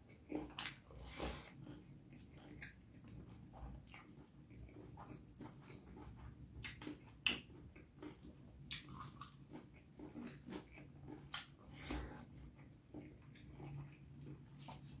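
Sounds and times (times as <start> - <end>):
person chewing with wet mouth smacks: 0.0 - 15.0.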